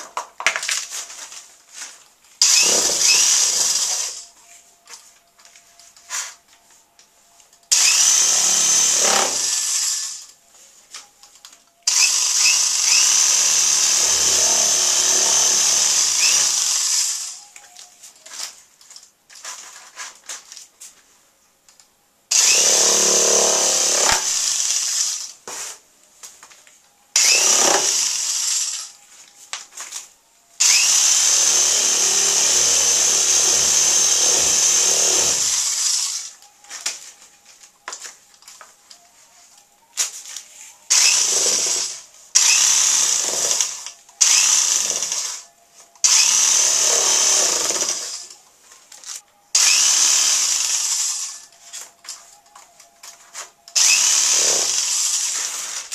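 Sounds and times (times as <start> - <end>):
power drill whirring: 2.4 - 4.3, 7.7 - 10.4, 11.9 - 17.9, 22.3 - 25.4, 27.2 - 29.0, 30.6 - 37.0, 40.9 - 48.4, 49.6 - 51.8, 53.7 - 55.9.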